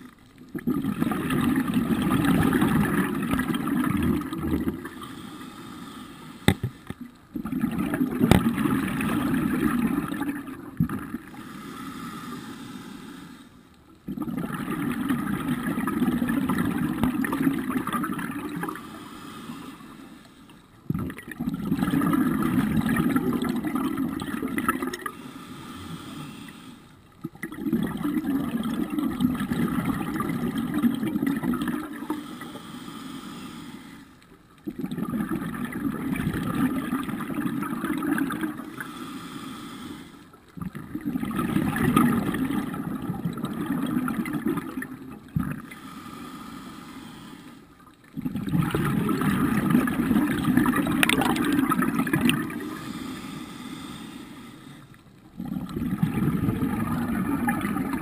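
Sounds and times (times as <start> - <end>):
bubbling exhalations underwater: 0.5 - 5.0, 6.5 - 11.4, 14.0 - 18.8, 20.9 - 25.1, 27.2 - 32.2, 34.6 - 38.8, 40.6 - 45.7, 48.1 - 52.8, 55.3 - 58.0
regulator inhalations: 4.8 - 7.0, 11.3 - 13.7, 18.5 - 20.8, 25.0 - 27.0, 32.0 - 34.2, 38.7 - 40.4, 45.6 - 47.9, 52.5 - 55.0.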